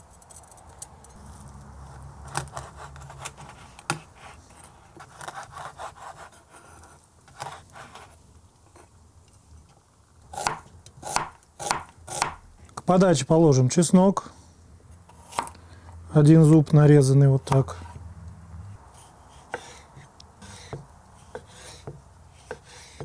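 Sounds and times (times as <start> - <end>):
knife sawing through meat: 5.1 - 6.8.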